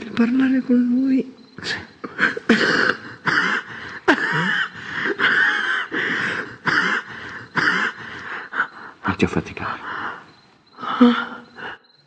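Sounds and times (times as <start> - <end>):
woman wheezing gasps and moans: 2.1 - 8.1.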